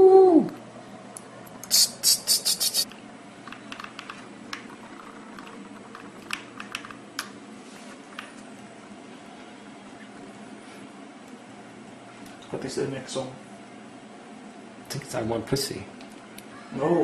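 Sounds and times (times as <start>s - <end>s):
short hissing bursts: 1.7s - 2.9s.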